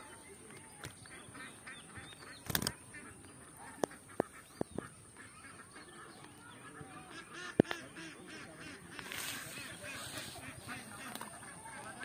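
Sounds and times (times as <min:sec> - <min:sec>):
flock of birds calling: 0:00.0 - 0:12.0
sharp clicks: 0:02.1 - 0:02.8.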